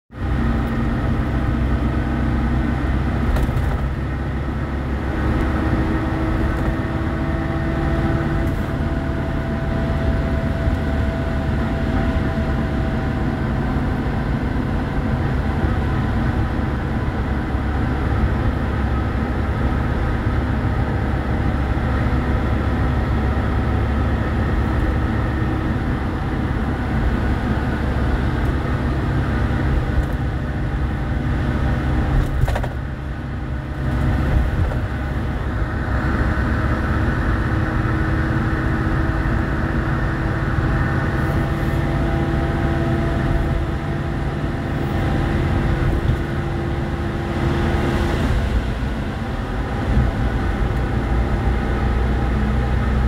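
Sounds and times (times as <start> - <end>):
car engine and road hum: 0.1 - 53.0
tyres on wet slushy road: 44.7 - 53.0.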